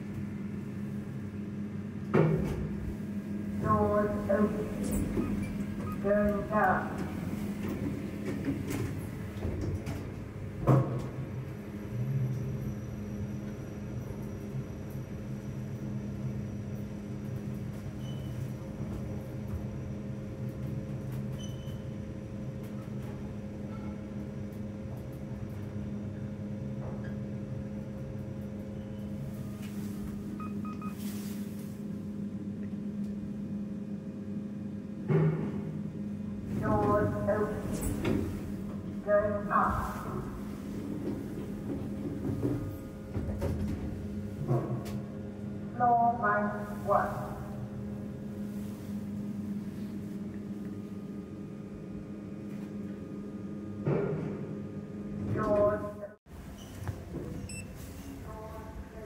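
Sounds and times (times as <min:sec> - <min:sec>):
lift car low hum: 0:00.0 - 0:59.0.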